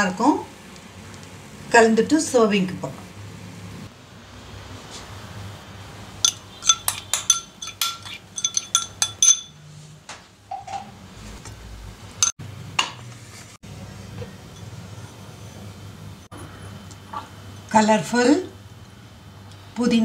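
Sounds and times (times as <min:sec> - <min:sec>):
metal spoon clinking against bowl: 0:06.2 - 0:09.6.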